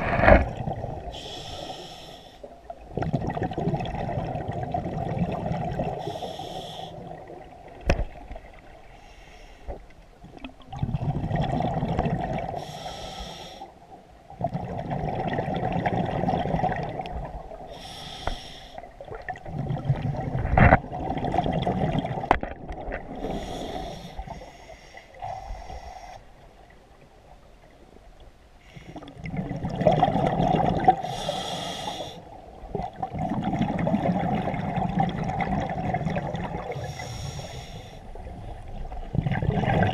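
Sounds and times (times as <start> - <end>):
exhaled bubbles rumbling: 0.0 - 1.2, 2.6 - 6.1, 10.2 - 12.6, 14.3 - 17.8, 18.8 - 24.4, 29.0 - 31.1, 32.3 - 37.0, 38.1 - 39.9
regulator inhale hiss: 1.1 - 2.5, 6.0 - 7.1, 8.9 - 9.8, 12.6 - 13.8, 17.7 - 18.9, 23.2 - 26.4, 31.0 - 32.3, 36.7 - 38.1.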